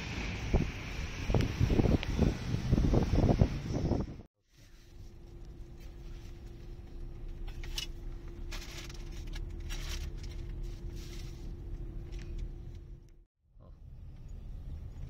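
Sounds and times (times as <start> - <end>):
passing traffic: 0.0 - 4.3
car engine and road rumble: 0.0 - 15.0
constant hum: 0.0 - 15.0.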